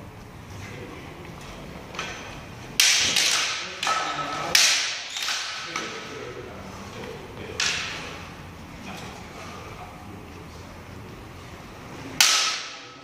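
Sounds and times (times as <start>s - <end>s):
bamboo swords clacking: 2.0s - 6.0s, 7.6s - 8.0s, 12.2s - 13.0s.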